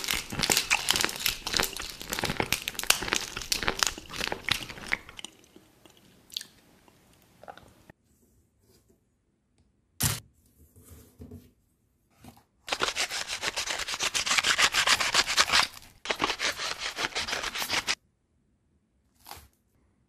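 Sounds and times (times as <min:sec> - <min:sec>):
knife sawing through crinkling foil: 0:00.0 - 0:05.1, 0:12.7 - 0:18.0.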